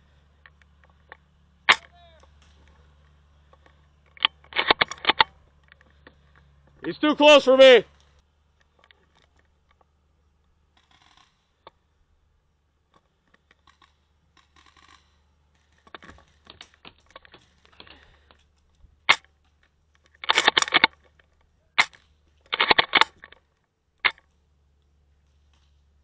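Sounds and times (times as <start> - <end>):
airsoft gun clicks: 15.9 - 21.2, 21.8 - 23.4.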